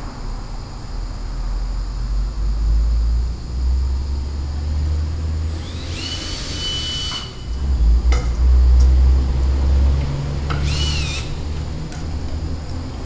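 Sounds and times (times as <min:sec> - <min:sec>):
cordless drill motor whining: 0:05.4 - 0:07.6, 0:10.5 - 0:11.4.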